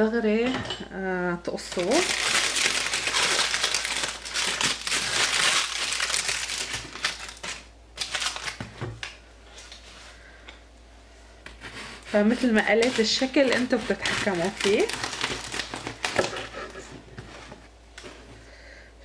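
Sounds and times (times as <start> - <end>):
parchment paper crinkling: 1.6 - 8.8, 11.8 - 17.4.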